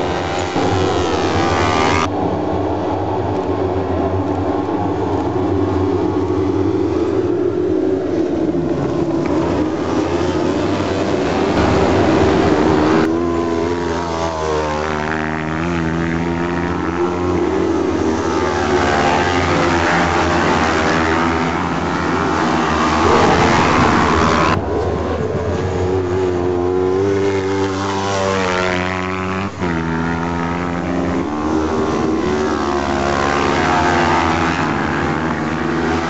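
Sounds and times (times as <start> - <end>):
racing car engines revving: 0.0 - 36.0.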